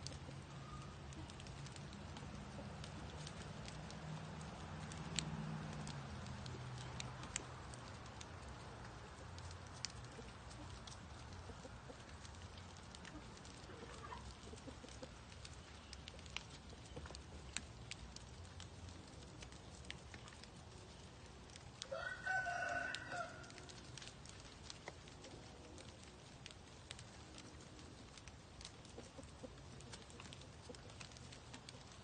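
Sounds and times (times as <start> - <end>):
faint scattered ticks: 0.0 - 32.0
rooster crowing: 21.9 - 23.7.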